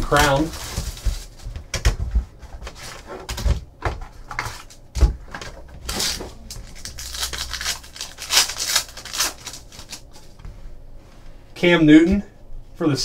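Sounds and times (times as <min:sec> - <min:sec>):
foil packs crinkling and tearing: 0:00.0 - 0:01.8, 0:05.8 - 0:10.4
cards sliding out of wrapper: 0:05.9 - 0:10.3.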